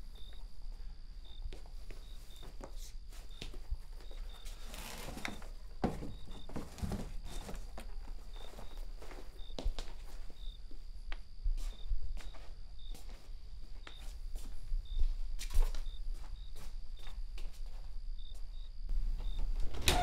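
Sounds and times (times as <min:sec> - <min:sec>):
rummaging through cardboard boxes: 0:03.2 - 0:09.4.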